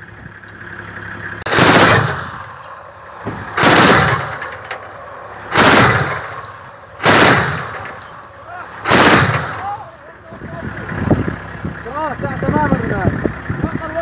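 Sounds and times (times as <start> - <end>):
heavy machine gun bursts: 1.5 - 2.7, 3.5 - 10.0.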